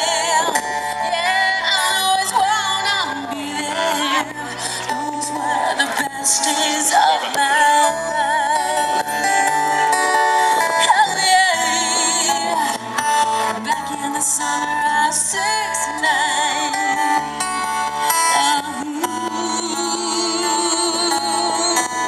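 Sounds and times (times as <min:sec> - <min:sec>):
acoustic guitars playing: 0:00.0 - 0:22.0
woman singing with vibrato: 0:00.0 - 0:22.0.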